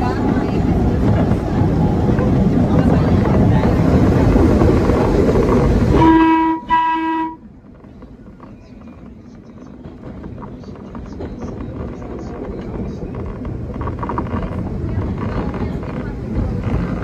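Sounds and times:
subway train running: 0.0 - 17.0
train horn blasts: 5.9 - 7.5.

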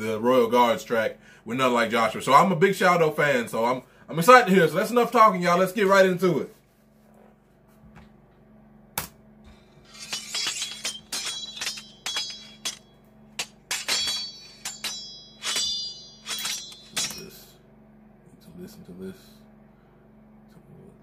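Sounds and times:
tinkling glass shards: 9.8 - 12.8, 13.4 - 17.4
glass smashing: 9.9 - 17.3.

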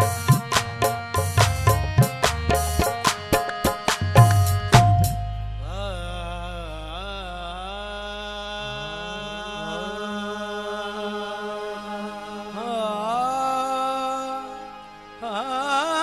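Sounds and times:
harmonium drone: 0.0 - 16.0
person singing long held notes: 5.6 - 16.0.

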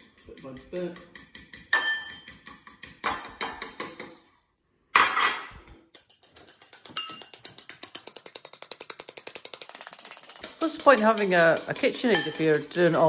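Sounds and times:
metal fork clinking on ceramic bowls: 0.2 - 2.8, 5.7 - 7.4, 10.7 - 13.0.

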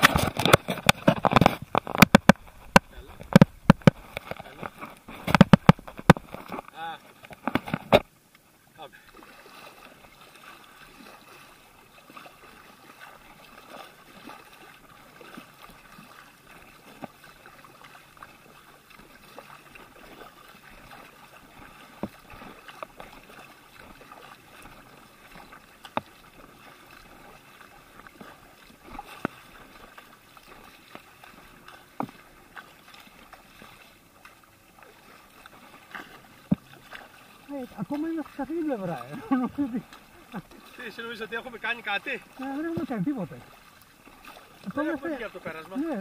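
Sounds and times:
sharp knocks: 0.0 - 4.0, 5.2 - 6.3
paddle splashing through water: 0.0 - 46.0.

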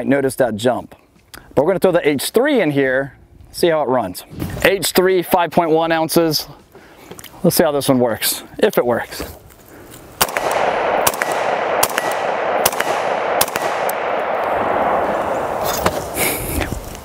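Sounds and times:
rifle gunshots: 10.2 - 16.2
steady hiss: 13.2 - 17.0.

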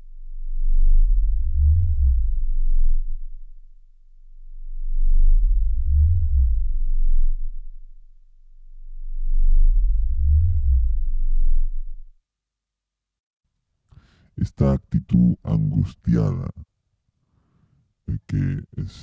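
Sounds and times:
steady low hum: 0.0 - 12.2
deep electronic tones: 0.3 - 3.5, 4.5 - 7.8, 8.8 - 12.1.

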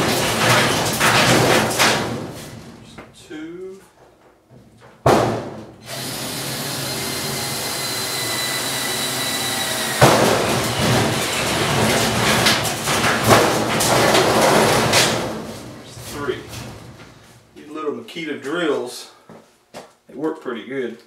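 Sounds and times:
drill whining: 5.8 - 11.7
drill bit scraping metal: 5.9 - 10.0.

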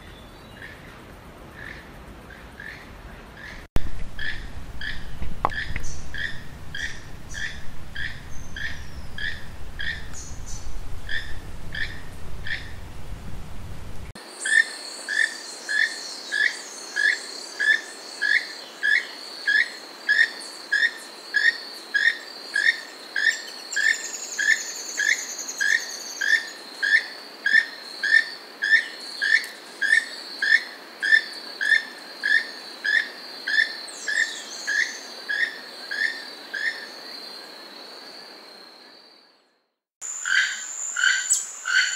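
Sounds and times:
high insect drone: 0.0 - 41.9
toucan croaking call: 1.6 - 12.8.

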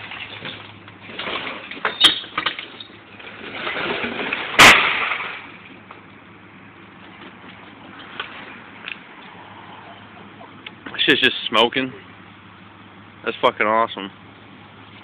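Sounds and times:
breaking glass: 1.2 - 5.5.

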